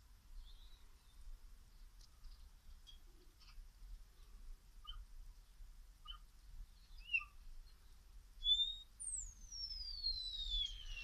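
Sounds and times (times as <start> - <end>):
bird chirps: 0.4 - 1.3, 4.8 - 5.1, 6.0 - 11.0
bird whistle gliding down: 6.9 - 7.4, 8.4 - 11.0.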